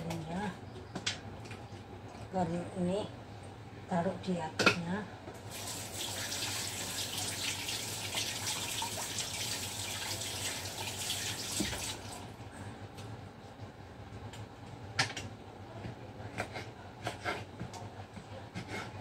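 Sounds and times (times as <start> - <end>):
tap running into sink: 10.4 - 12.2.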